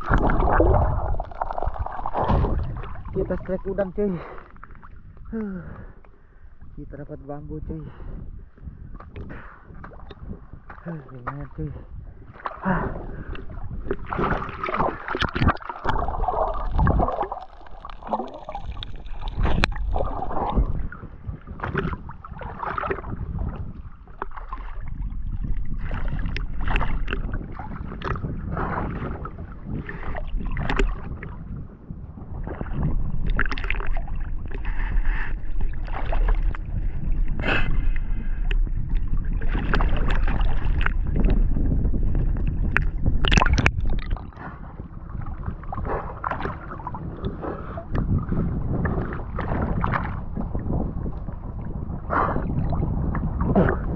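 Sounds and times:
sea water splashing: 0.0s - 6.0s, 9.0s - 31.5s, 32.4s - 53.9s
small waves slapping: 12.3s - 24.9s, 38.4s - 41.5s.

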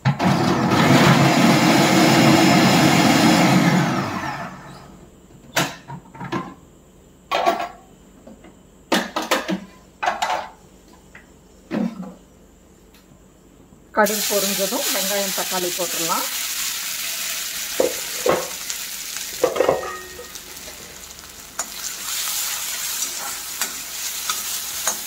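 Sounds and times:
seeds sizzling in hot oil: 14.0s - 25.0s.

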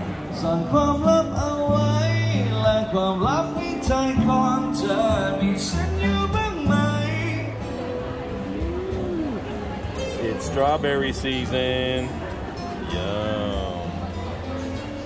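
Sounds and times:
acoustic guitar: 0.0s - 15.0s
man singing: 0.3s - 7.8s.

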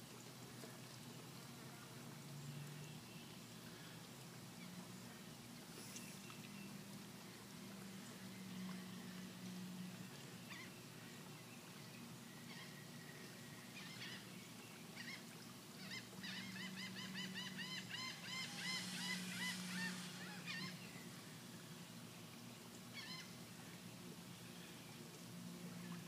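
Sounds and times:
bird chirping: 15.8s - 21.2s
low hum: 17.5s - 22.4s.

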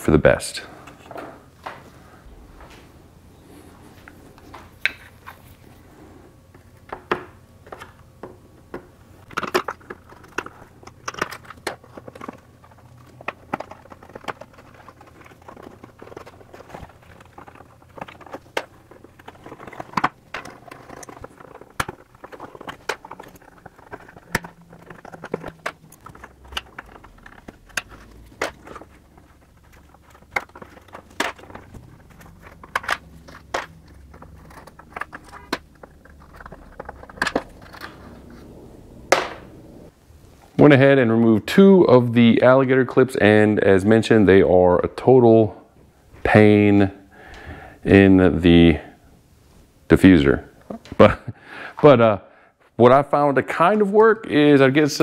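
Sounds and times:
scraping and handling sounds: 0.8s - 40.6s.

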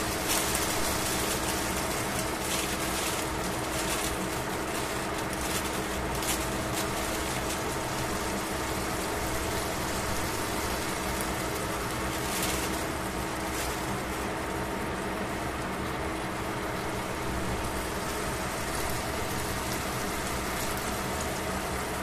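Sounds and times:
fat crackling: 0.0s - 15.7s
pork sizzling in a pan: 0.0s - 22.0s.

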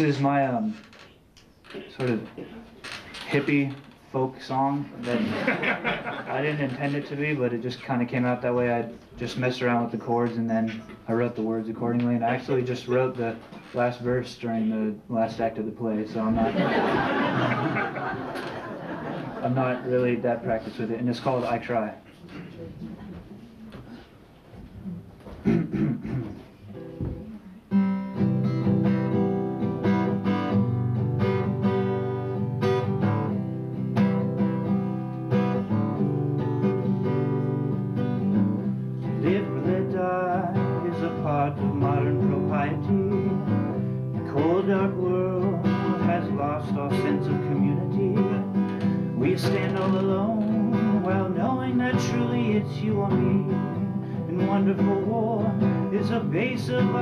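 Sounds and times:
acoustic guitar strumming: 25.4s - 57.0s.

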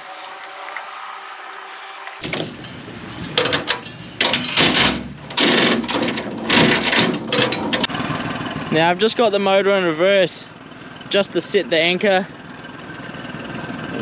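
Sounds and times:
electric trolling motor whining: 0.0s - 2.3s.

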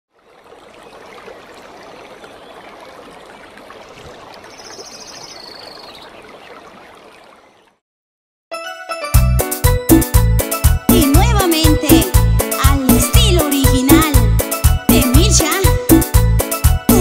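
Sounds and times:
waterfall and stream rushing: 0.2s - 7.7s
music: 8.5s - 17.0s.

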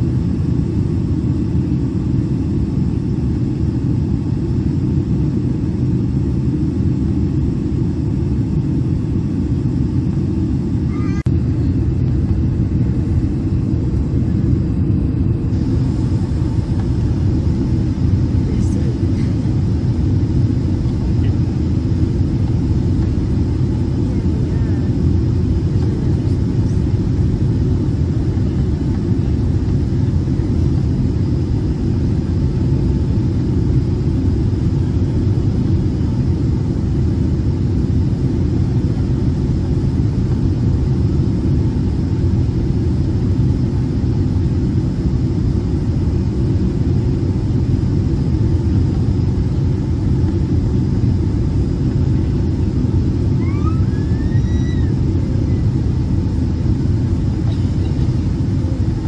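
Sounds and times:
aircraft cabin engine rumble: 0.0s - 59.0s.

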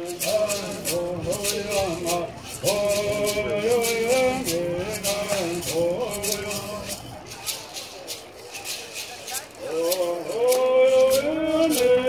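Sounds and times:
men singing in unison: 0.0s - 7.1s, 9.6s - 12.0s
gourd rattles shaking: 0.0s - 12.0s.

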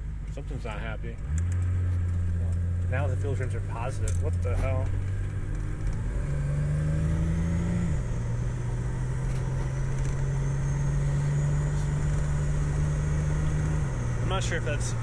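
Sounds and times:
car engine running from cabin: 0.0s - 15.0s.

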